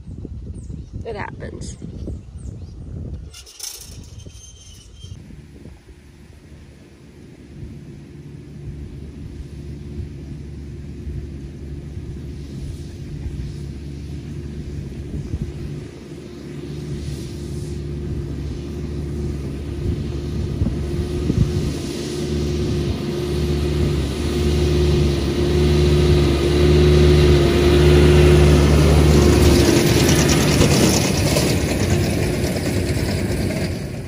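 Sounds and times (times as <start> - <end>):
baler rattling rush: 3.2 - 5.2, 27.2 - 34.0
tractor engine running under load: 5.2 - 34.0.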